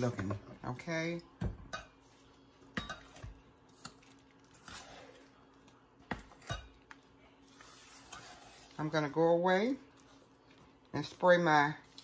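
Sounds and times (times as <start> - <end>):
soft scrape in bowl: 4.5 - 5.4, 7.2 - 9.0.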